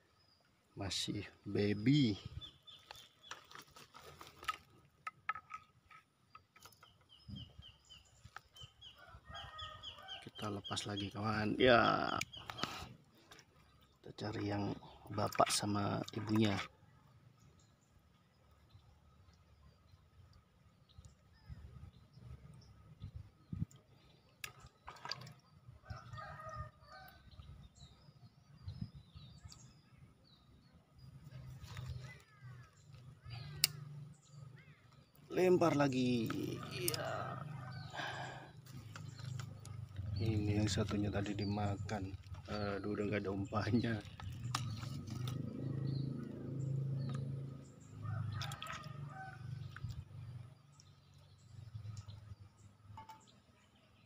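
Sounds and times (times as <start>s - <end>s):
birds chirping and calling: 0.8s - 4.6s, 5.3s - 13.4s, 20.8s - 54.0s.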